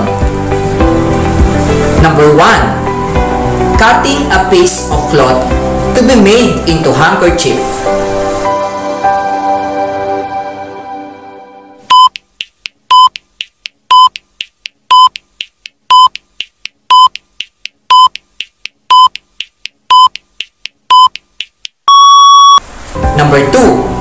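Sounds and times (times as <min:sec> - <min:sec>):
short electronic beeps: 0:11.9 - 0:12.2, 0:12.9 - 0:13.2, 0:13.9 - 0:14.2, 0:15.9 - 0:16.2, 0:16.9 - 0:17.1, 0:17.9 - 0:18.2, 0:21.9 - 0:22.6.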